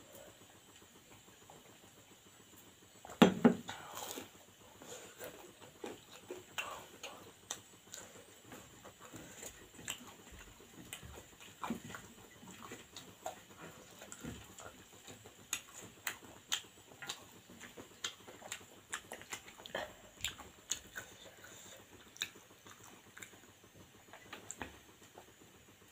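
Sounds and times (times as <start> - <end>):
person chewing: 3.6 - 23.4.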